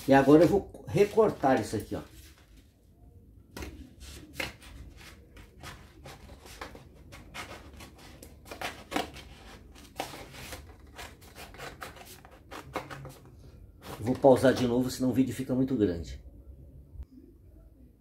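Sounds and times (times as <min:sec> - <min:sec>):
paper rustling: 0:00.0 - 0:02.7, 0:03.6 - 0:14.7
scissors cutting paper: 0:04.3 - 0:13.2.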